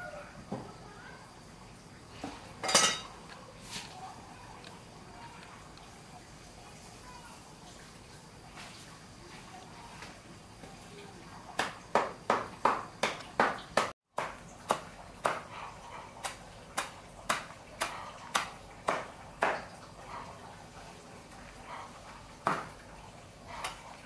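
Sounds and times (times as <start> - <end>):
cleaver chopping leafy greens: 11.6 - 19.7.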